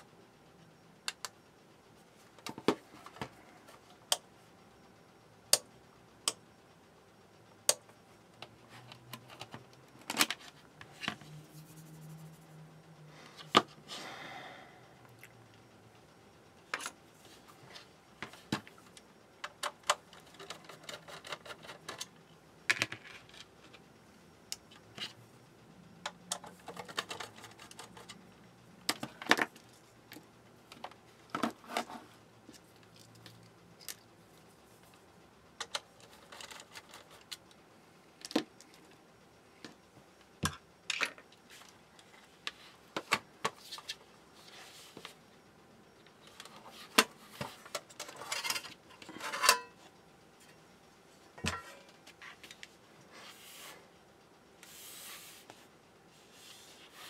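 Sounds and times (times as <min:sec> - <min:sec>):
rustling and scraping: 0:30.8 - 0:33.3, 0:54.6 - 0:57.0.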